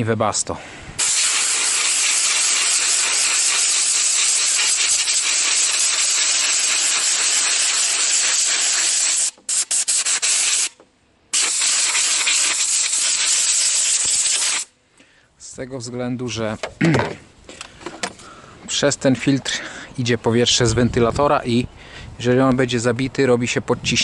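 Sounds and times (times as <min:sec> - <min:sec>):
compressed air blow gun hissing: 0:00.9 - 0:14.8.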